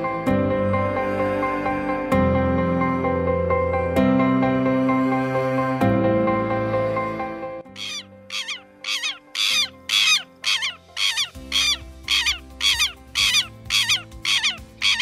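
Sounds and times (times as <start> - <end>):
soft background music: 0.0 - 15.0
bird harsh call: 7.8 - 15.0.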